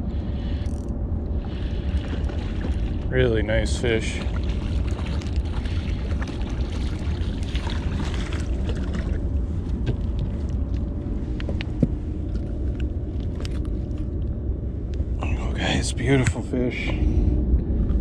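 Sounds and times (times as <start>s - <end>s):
wind rumble on microphone: 0.0s - 18.0s
fish splashing at water surface: 1.4s - 9.2s.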